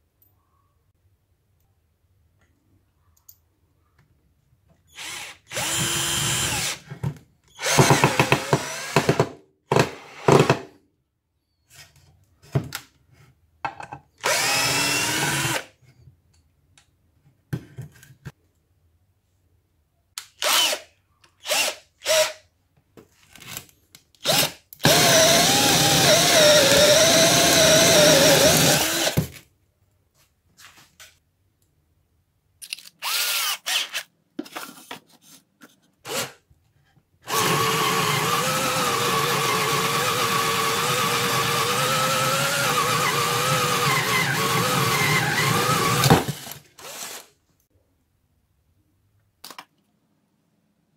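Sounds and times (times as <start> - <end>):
cordless drill boring into wood: 4.9 - 6.8, 7.5 - 9.2, 14.2 - 15.7, 20.4 - 20.8, 21.4 - 22.4, 24.2 - 29.2, 33.0 - 34.0, 37.3 - 47.3
drill motor whining under load: 5.0 - 6.8, 14.2 - 15.6, 24.2 - 29.2, 37.3 - 47.2.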